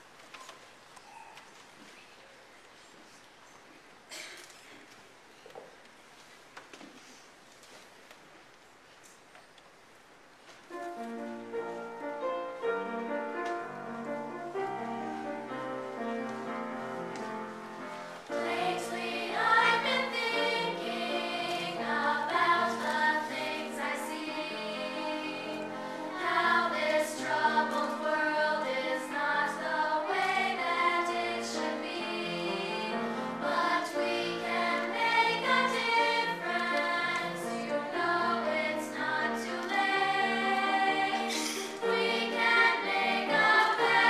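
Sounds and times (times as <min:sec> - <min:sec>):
piano accompaniment: 0:10.7 - 0:44.0
girls' chorus singing: 0:18.2 - 0:44.0.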